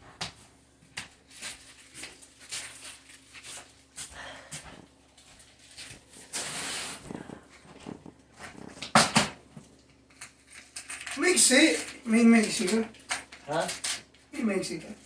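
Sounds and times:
plastic wrapping rustling: 0:01.2 - 0:04.0, 0:05.2 - 0:14.1.

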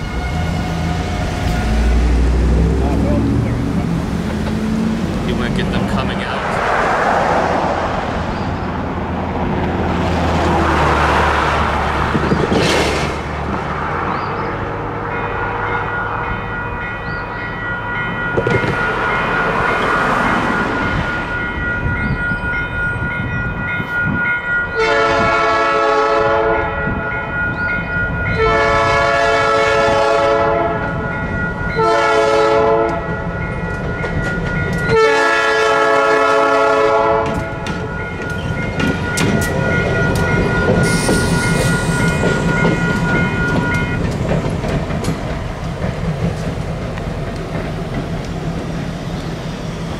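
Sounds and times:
locomotive horn blasts: 0:00.0 - 0:02.0, 0:24.8 - 0:27.0, 0:28.3 - 0:31.0, 0:31.8 - 0:33.2, 0:34.9 - 0:37.7
railroad crossing bell ringing: 0:00.0 - 0:03.5, 0:14.2 - 0:44.6
cars passing on road: 0:00.0 - 0:49.9.

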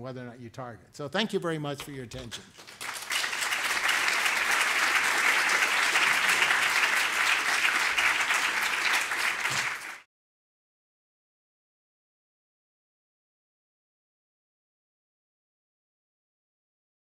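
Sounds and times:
audience applauding: 0:02.5 - 0:10.1.

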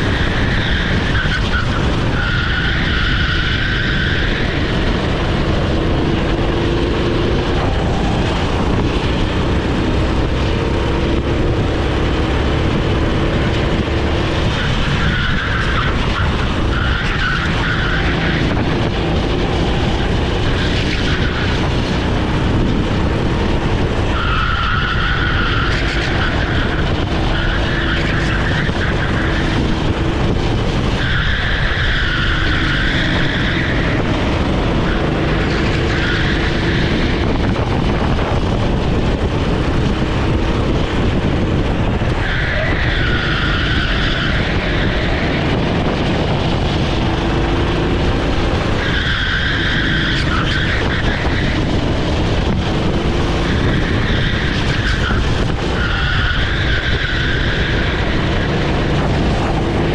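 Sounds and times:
kart engine running: 0:00.0 - 0:59.9
wind rumble on microphone: 0:00.0 - 0:59.9
tyres squealing: 0:14.5 - 0:21.7, 0:24.0 - 0:38.0, 0:41.4 - 0:59.9.

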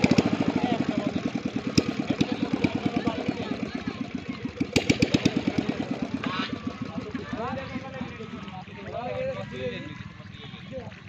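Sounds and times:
small engine running: 0:00.0 - 0:11.0.

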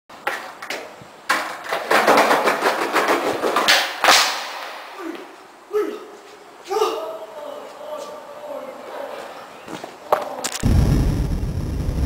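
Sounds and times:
skateboard wheels rolling on tiles: 0:00.1 - 0:04.3
skateboard pop crack: 0:03.6 - 0:04.8.

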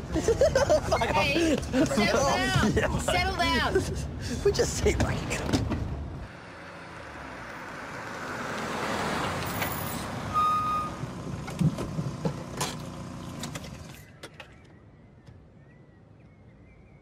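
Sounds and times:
small car driving up: 0:06.3 - 0:14.7.

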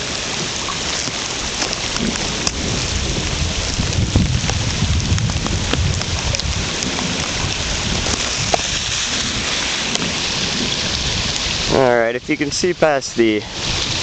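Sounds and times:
rain hissing: 0:00.0 - 0:14.0.

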